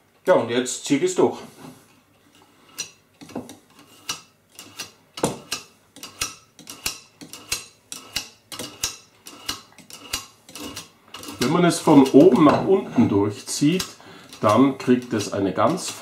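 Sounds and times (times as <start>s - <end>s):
knife scraping through sharpener: 2.7s - 12.5s.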